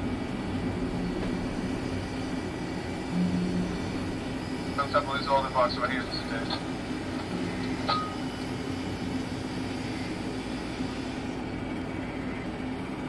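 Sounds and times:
steady cab hum: 0.0 - 13.0
low steady tone: 7.3 - 8.8.

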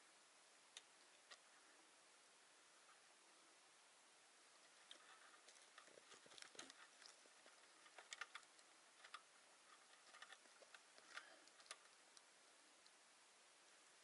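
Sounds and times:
hands clicking and scraping wood box: 4.9 - 11.9.

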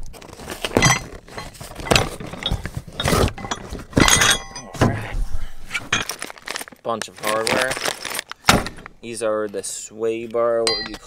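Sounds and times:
metal parts clattering in box: 0.3 - 4.8, 5.9 - 8.6
sharp ringing knocks: 10.7 - 11.0.

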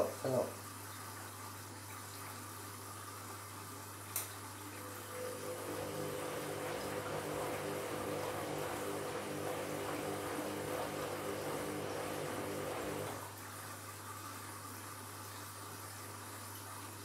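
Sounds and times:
water sloshing in washing machine: 0.8 - 14.9
washing machine motor hum: 4.8 - 13.4.

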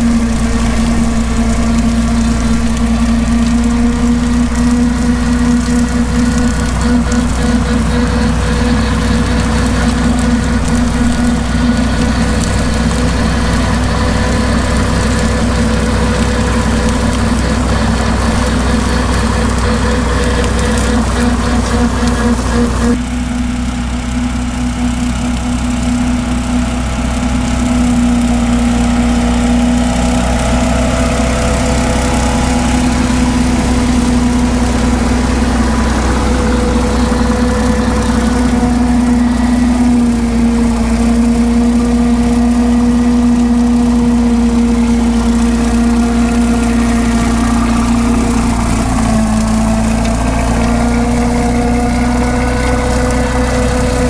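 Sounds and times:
rotary mower cutting grass: 0.0 - 54.0
tractor engine running: 0.0 - 54.0.

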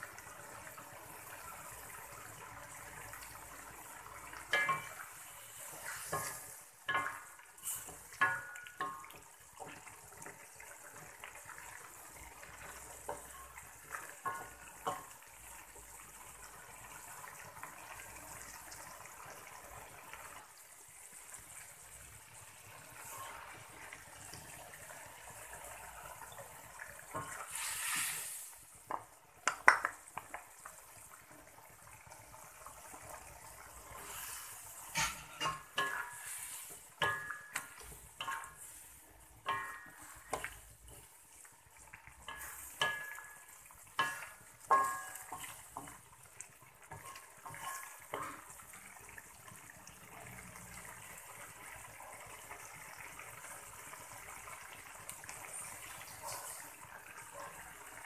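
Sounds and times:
faint simmering: 0.0 - 58.0
wooden spatula scraping wok: 4.4 - 9.8, 27.1 - 28.6, 33.7 - 41.2, 42.2 - 43.4, 46.9 - 48.5, 56.1 - 56.7
liquid poured into hot wok hissing: 4.6 - 8.6, 26.9 - 28.8, 33.7 - 40.9
bowl clinking on wok: 39.5 - 40.5, 42.3 - 45.5.

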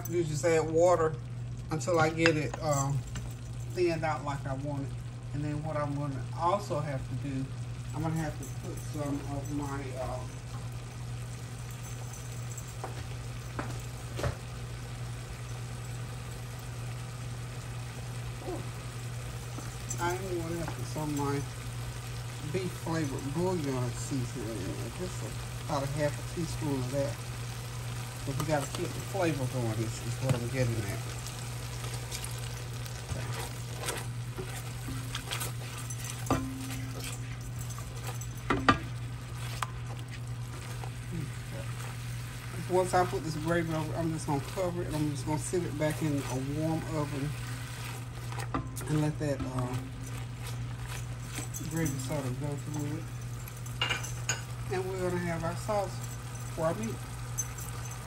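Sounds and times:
gravy sizzling and bubbling: 0.0 - 58.0
steady low hum: 0.0 - 58.0
spatula scraping pan: 31.7 - 52.4.

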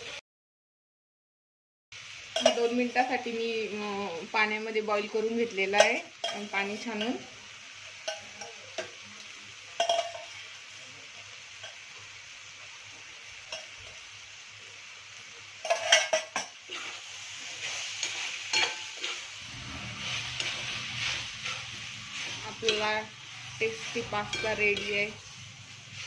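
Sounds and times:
food sizzling in a metal pan: 0.0 - 0.2, 1.9 - 26.0
metal spoon scraping a pan: 2.4 - 3.2, 5.7 - 7.3, 8.0 - 10.5, 13.4 - 14.1, 15.6 - 26.0.

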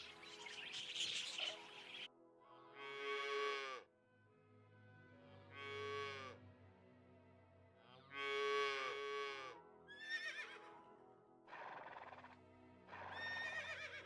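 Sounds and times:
soft background music: 0.0 - 14.0
horse whinnying: 9.9 - 10.6, 13.1 - 14.0.

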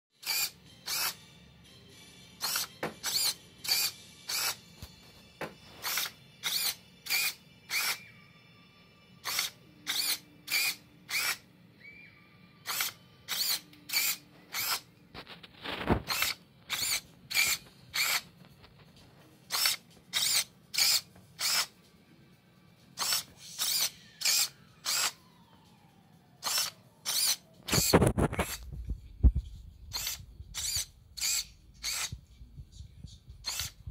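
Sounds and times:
servo motor whirs: 0.2 - 1.2, 2.4 - 4.6, 5.8 - 8.0, 9.2 - 11.4, 12.7 - 14.9, 15.6 - 18.2, 19.5 - 21.7, 23.0 - 25.6, 26.4 - 28.8, 29.9 - 32.2, 33.4 - 33.9.

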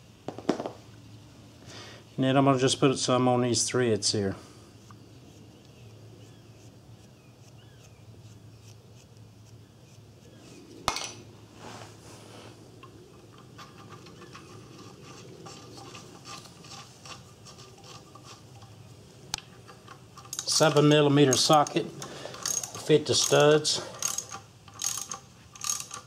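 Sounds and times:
small metal clinks and scraping: 12.4 - 26.0.

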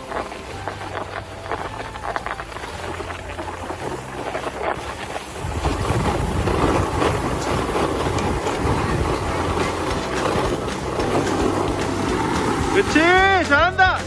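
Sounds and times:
wind on microphone: 0.0 - 12.9
skis scraping on hard snow: 0.0 - 14.0.

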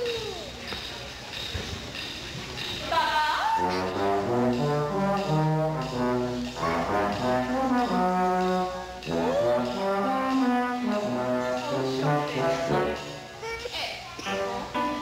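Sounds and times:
waltz music: 3.6 - 13.4, 14.2 - 15.0.

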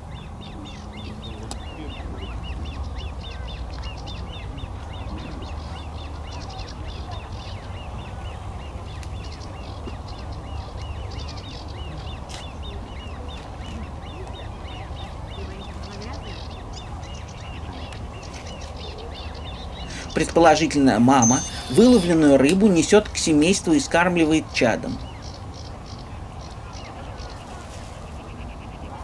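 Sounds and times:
bird chicks piping calls: 0.0 - 22.5.

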